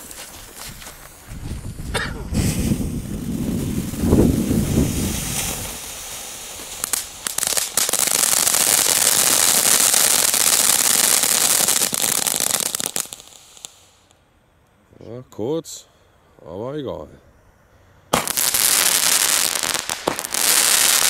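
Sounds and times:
firework cracks: 2.3 - 14.2, 18.1 - 21.0
spark fountain hissing: 2.5 - 14.0.

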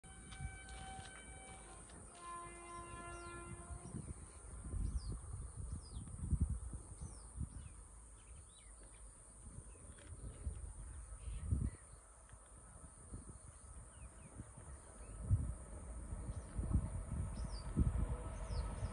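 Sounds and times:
distant locomotive horn: 0.0 - 4.5, 17.6 - 18.9
wind buffeting microphone: 0.0 - 18.9
birds chirping: 0.1 - 4.1.

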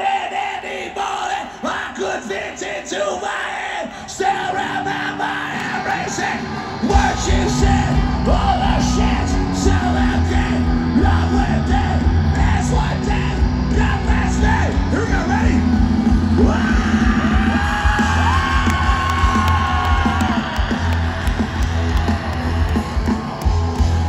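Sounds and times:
crowd yelling: 0.0 - 24.0
live rock band playing: 5.6 - 24.0.

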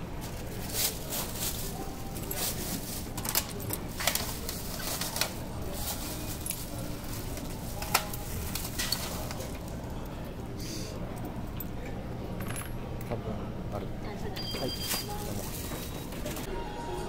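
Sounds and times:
plastic bag rustling and crinkling: 0.2 - 9.9.

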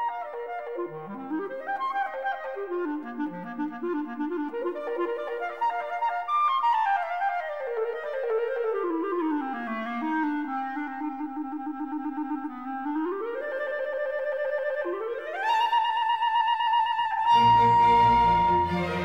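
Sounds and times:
solo clarinet: 0.0 - 19.0
string accompaniment: 14.8 - 19.0.

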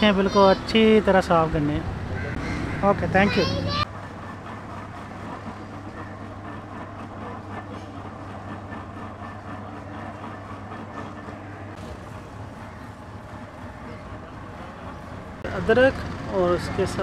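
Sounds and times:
juice press mechanical hum: 0.0 - 17.0.

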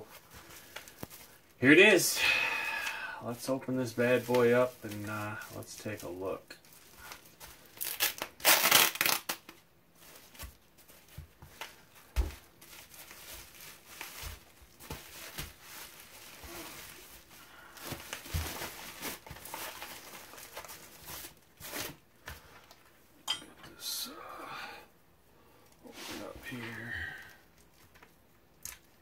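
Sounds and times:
bubble wrap crinkling: 2.8 - 22.9.

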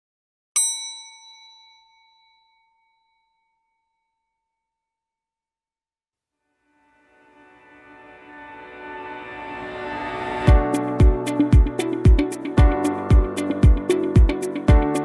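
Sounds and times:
metallic chime ringing: 0.6 - 4.4
music: 6.3 - 15.0.

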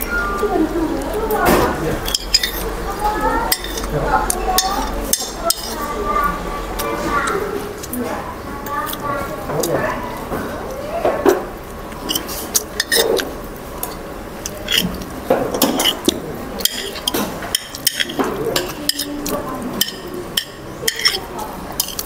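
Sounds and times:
metal spoon clinking against bowl: 2.0 - 2.7, 3.5 - 3.9, 4.5 - 5.8, 15.5 - 22.0.

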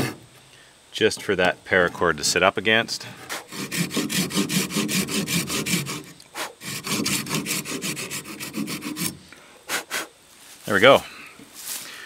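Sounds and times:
hand saw cutting wood: 0.0 - 0.2, 3.3 - 10.1.

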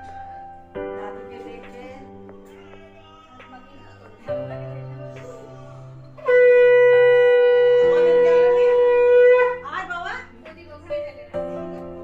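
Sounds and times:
soft background music: 0.0 - 12.0
conch shell blown: 5.7 - 9.7.

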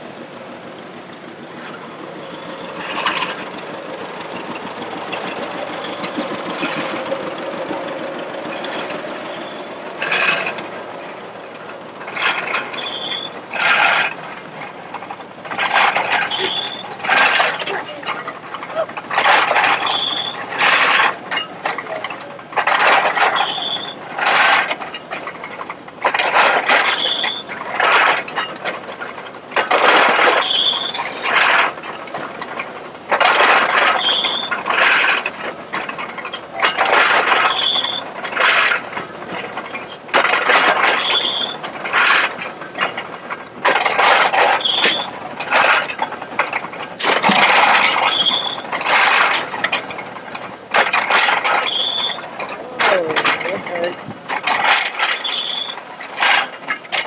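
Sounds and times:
hay baler clattering: 0.0 - 57.0
short high squeak: 9.2 - 9.7, 12.8 - 13.4, 16.3 - 17.0, 23.4 - 24.0, 34.0 - 34.6, 51.7 - 52.2.

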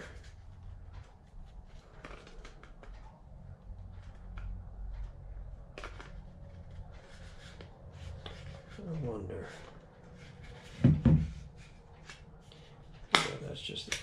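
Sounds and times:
low hum: 0.0 - 13.1.

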